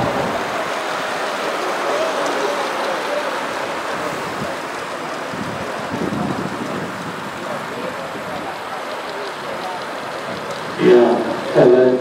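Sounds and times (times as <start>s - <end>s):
wind on microphone: 0.0s - 1.1s, 3.9s - 8.6s
faint voices: 0.0s - 12.0s.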